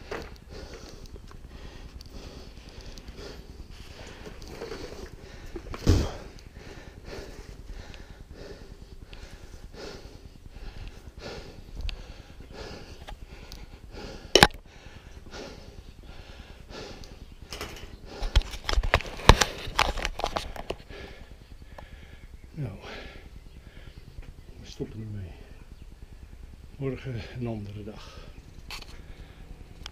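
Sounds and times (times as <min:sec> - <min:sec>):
person breathing hard through nose: 0:00.0 - 0:24.2, 0:27.1 - 0:29.8.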